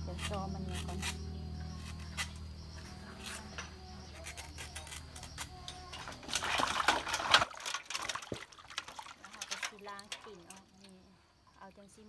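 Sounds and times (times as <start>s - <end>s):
water splashing in metal bowl: 5.9s - 11.0s.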